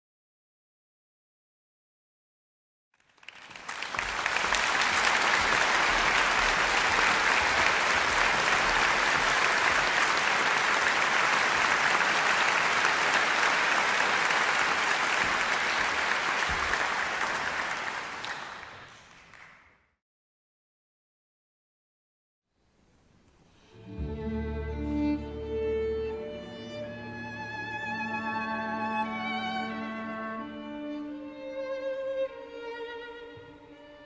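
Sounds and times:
audience applauding: 3.0 - 19.8.

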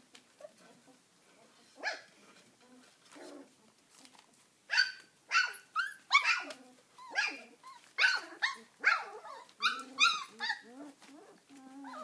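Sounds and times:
dogs yipping and barking: 4.7 - 12.0.

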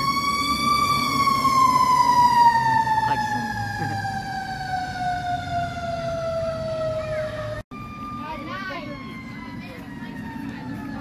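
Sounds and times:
fire truck siren falling tone: 0.0 - 11.0.

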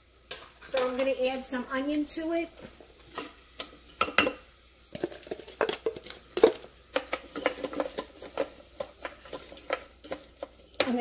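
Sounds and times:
utensil knocking and scraping in pot: 2.6 - 11.0.

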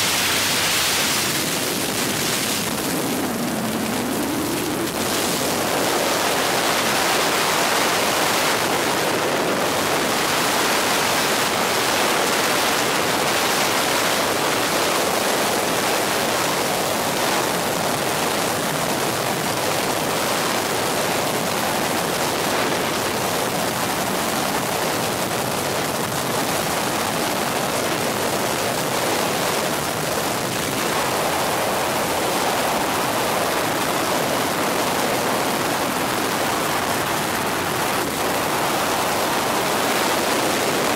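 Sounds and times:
helicopter cabin rushing noise: 0.0 - 11.7.

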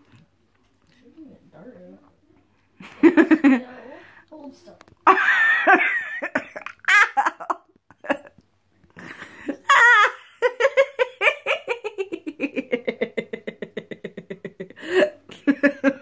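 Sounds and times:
girl laughing: 5.0 - 8.4, 9.0 - 16.0.

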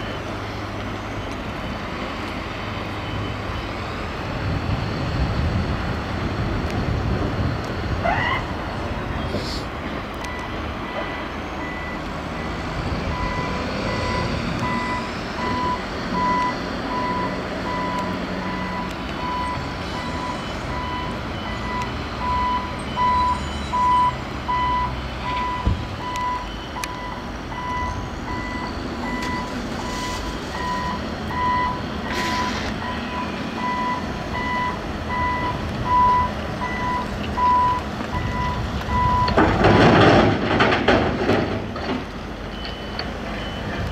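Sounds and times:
vehicle reversing alarm beeping: 0.0 - 5.9, 7.4 - 40.6, 41.2 - 43.9
diesel machines rumbling: 0.0 - 43.9.

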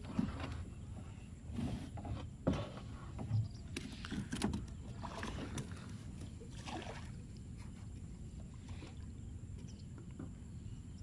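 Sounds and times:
water sloshing against wooden boat: 0.0 - 11.0
bumps and splashes: 3.2 - 7.3.

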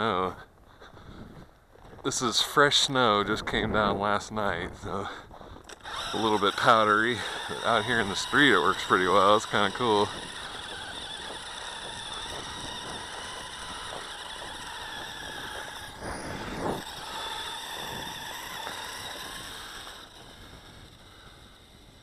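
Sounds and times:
track running over snow: 0.0 - 22.0
small electric motor whining: 5.6 - 22.0.

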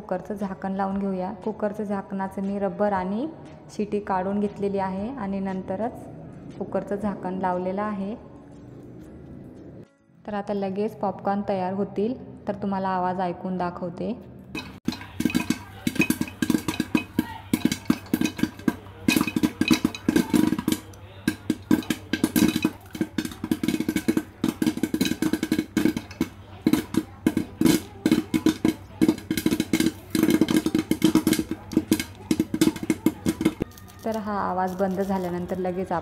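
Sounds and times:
popcorn popping in metal pot: 14.5 - 36.0.

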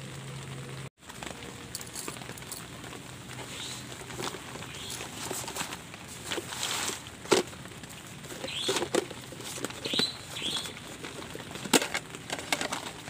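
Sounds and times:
fabric and plastic sheeting rustling: 1.0 - 13.0.

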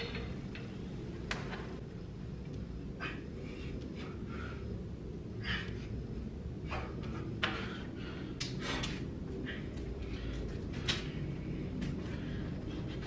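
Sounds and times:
steady low rumble: 0.0 - 13.0
man breathing hard: 2.8 - 13.0.

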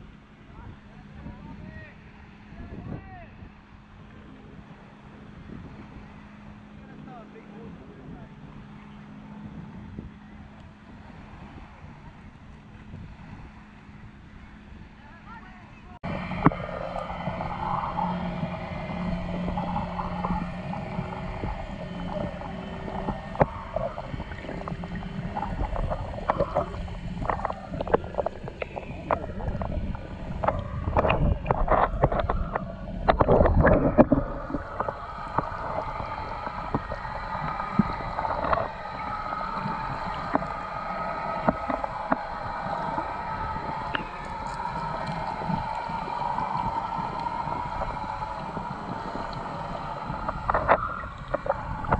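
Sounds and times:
faint low hum: 0.0 - 51.9
underwater gurgling wash: 0.0 - 51.9
bubbling: 16.0 - 51.9
sharp knocks underwater: 16.0 - 51.9.

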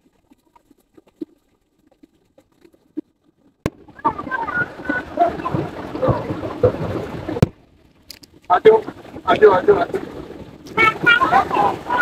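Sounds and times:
mountain river rushing: 3.7 - 12.0.

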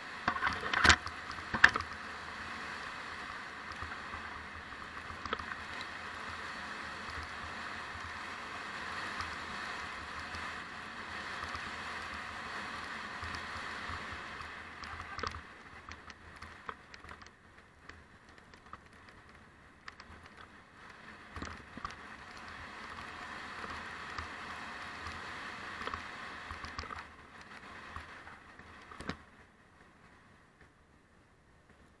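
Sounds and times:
bike rolling rushing noise: 0.0 - 32.0
bike rattling and knocking: 0.2 - 2.0, 3.6 - 6.3, 11.3 - 29.3.

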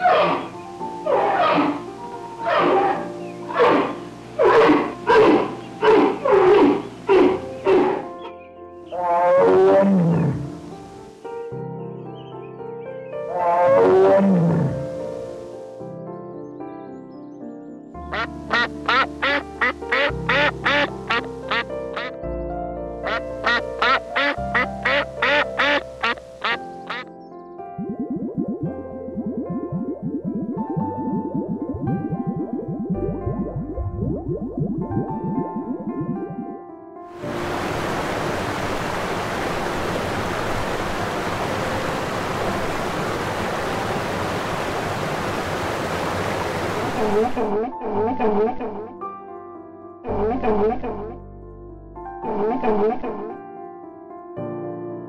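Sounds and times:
music: 0.0 - 55.0
duck quacking: 18.1 - 22.2, 23.0 - 27.0.

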